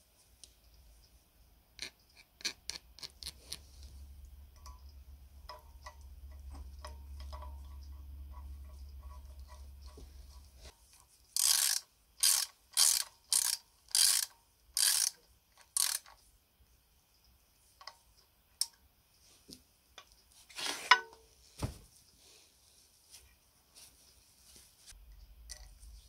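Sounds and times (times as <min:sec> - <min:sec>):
ratchet wrench clicking: 0:11.4 - 0:16.2.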